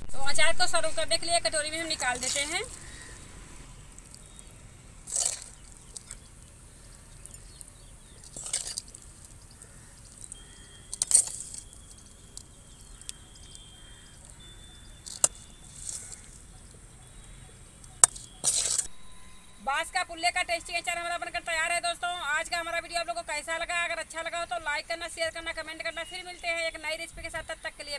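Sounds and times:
metal spoon scraping metal pan: 2.0 - 2.8, 18.0 - 18.9.

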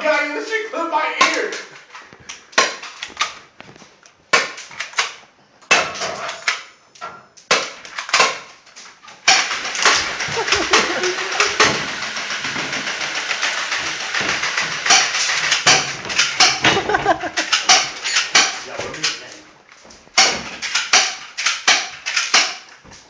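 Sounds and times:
airsoft pistol cracks: 7.5 - 8.5, 17.4 - 18.6, 20.2 - 22.7
continuous rough noise: 9.0 - 21.1.

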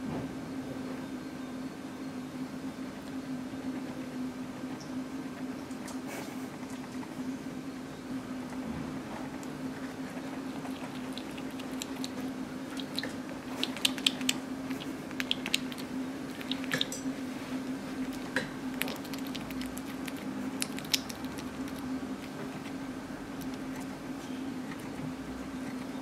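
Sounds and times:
steady low hum: 0.0 - 26.0
hedgehog chewing: 9.2 - 26.0.

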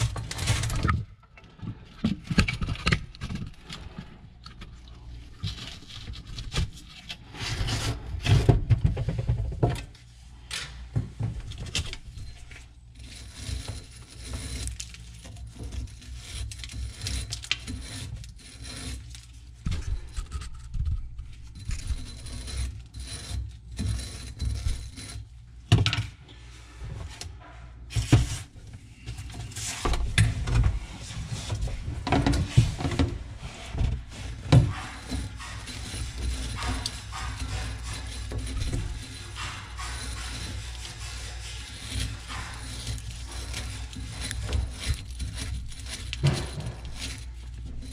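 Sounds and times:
wire brush scrubbing metal: 31.0 - 47.9.

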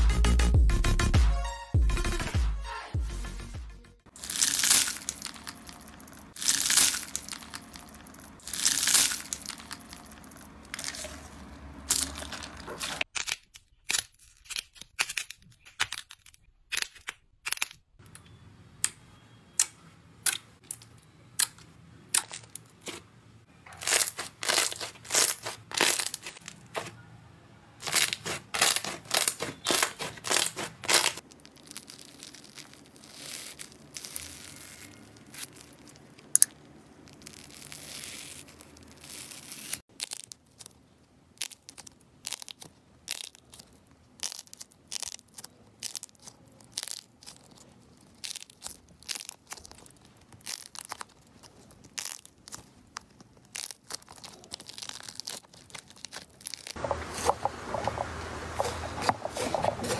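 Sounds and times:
scissors snipping foam: 27.8 - 31.2.

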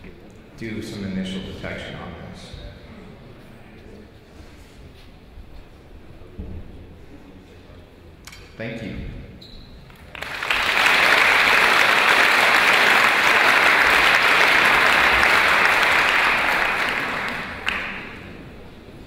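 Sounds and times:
audience applauding: 9.9 - 18.7.

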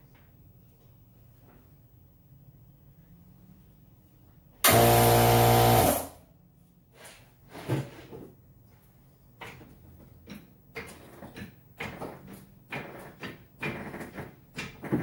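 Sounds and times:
impact wrench rattling buzz: 4.6 - 6.2.

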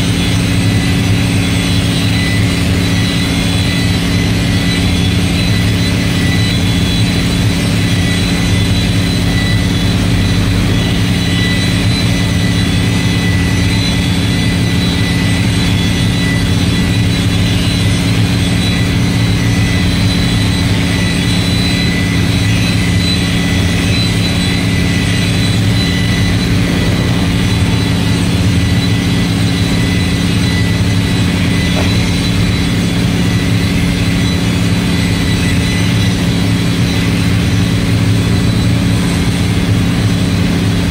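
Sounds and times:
electric polisher motor whine: 0.0 - 40.2.

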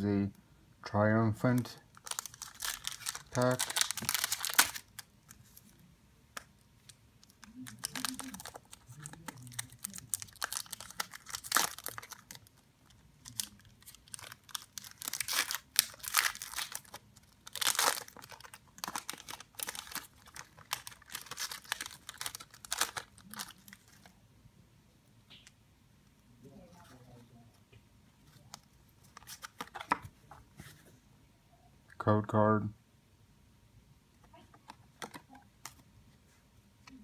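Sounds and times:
foil pack crinkling and tearing: 2.0 - 5.1, 7.3 - 24.1.

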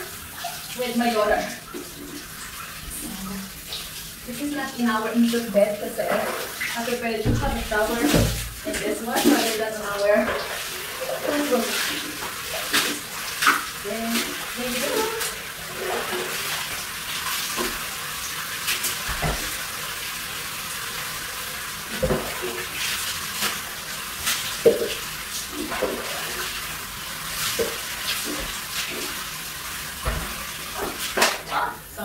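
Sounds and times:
water running into plastic basin: 0.0 - 32.0
plastic jug knocking and splashing: 7.2 - 9.6, 19.0 - 19.6, 21.9 - 22.7, 24.6 - 25.0, 30.0 - 31.5.

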